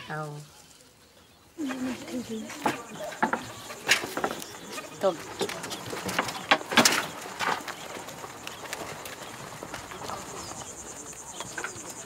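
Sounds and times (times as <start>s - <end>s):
birds chirping: 0.0s - 12.0s
high insect hum: 0.4s - 12.0s
cart knocks and clatters: 2.4s - 12.0s.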